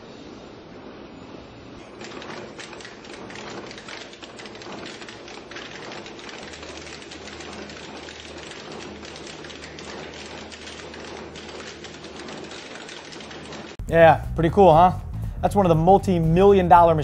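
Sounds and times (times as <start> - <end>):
braiding machine clattering clicks: 1.8 - 13.8
low hum: 13.8 - 17.0.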